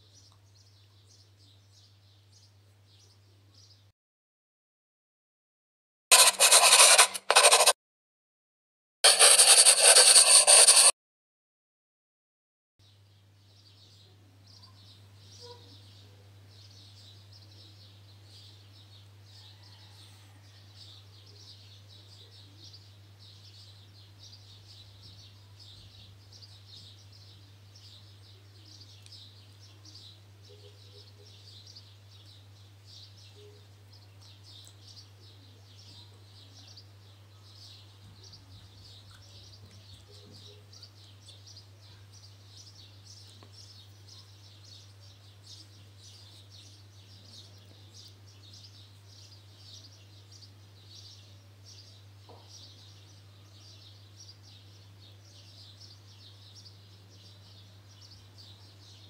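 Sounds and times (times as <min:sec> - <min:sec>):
faint high-pitched chirping: 0:12.9 - 0:59.0.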